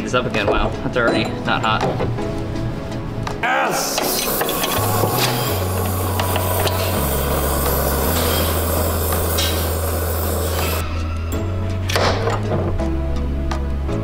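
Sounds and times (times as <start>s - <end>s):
dense hiss: 3.7s - 10.8s
background music with bass notes: 4.4s - 14.0s.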